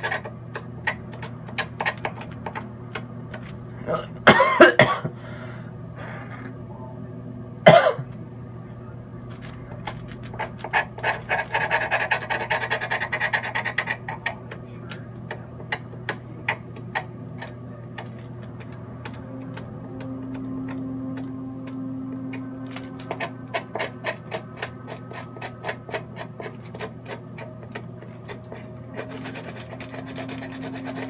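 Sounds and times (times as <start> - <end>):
steady low hum: 0.0 - 31.0
person coughing: 3.8 - 6.5, 7.7 - 8.1
scraping on parchment paper: 10.2 - 14.0, 23.1 - 31.0.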